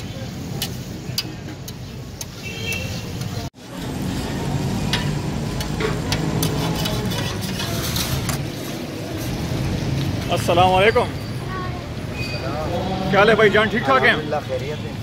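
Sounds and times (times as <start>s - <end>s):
metal spatula scraping: 4.8s - 9.7s.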